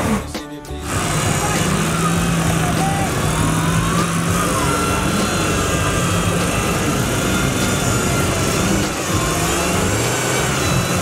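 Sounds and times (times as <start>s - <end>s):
buggy engine droning: 0.0s - 11.0s.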